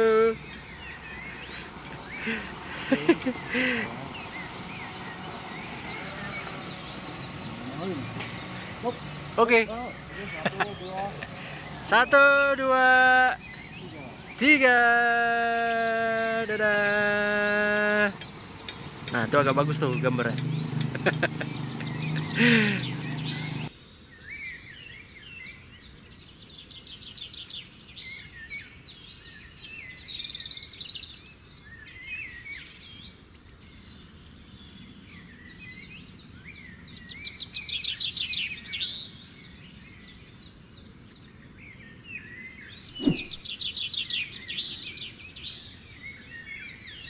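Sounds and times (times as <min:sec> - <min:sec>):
songbirds chirping and singing: 0:00.0 - 0:47.0
dull thump: 0:42.9 - 0:43.4.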